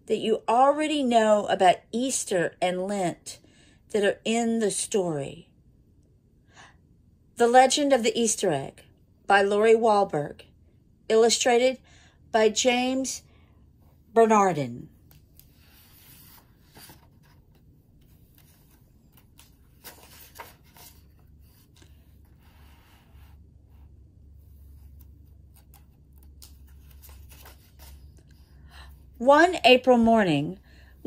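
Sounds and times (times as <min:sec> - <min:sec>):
paper rustling: 0:15.0 - 0:23.4, 0:24.5 - 0:28.5
book pages turning: 0:15.0 - 0:28.6.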